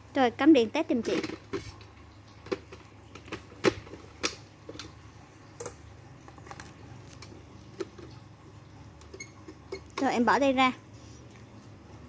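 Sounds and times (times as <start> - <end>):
plastic clicks and knocks: 2.4 - 5.0.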